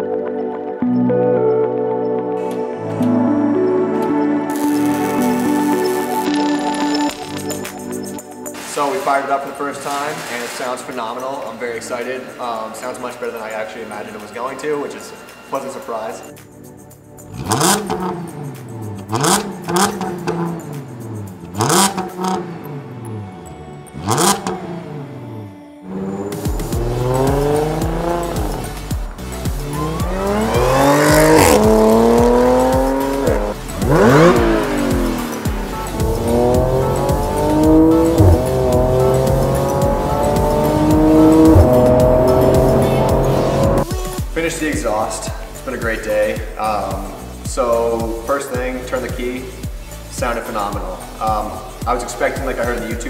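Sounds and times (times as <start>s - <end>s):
car engine revving: 17.3s - 43.9s.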